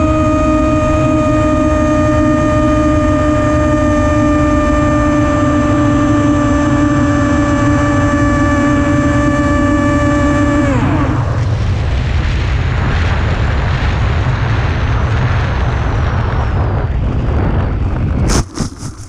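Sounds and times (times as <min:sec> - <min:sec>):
drone motors whining: 0:00.0 - 0:11.6
wind rush: 0:00.0 - 0:19.0.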